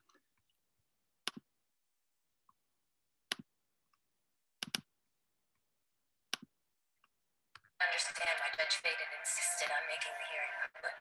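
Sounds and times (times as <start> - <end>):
computer mouse clicks: 1.2 - 1.4, 3.3 - 3.5, 4.6 - 4.9, 6.3 - 6.5.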